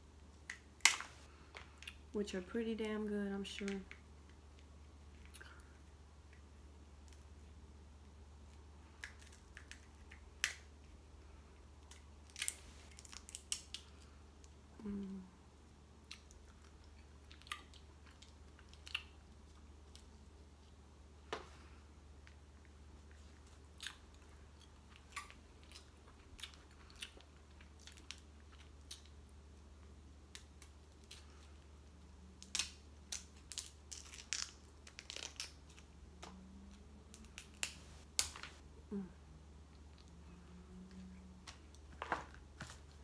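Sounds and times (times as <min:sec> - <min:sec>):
crab shell cracking: 0:00.5 - 0:02.0, 0:09.0 - 0:10.7, 0:11.8 - 0:13.9, 0:32.4 - 0:35.8, 0:37.1 - 0:38.5
chewing: 0:23.1 - 0:29.1
steady low hum: 0:35.6 - 0:43.0.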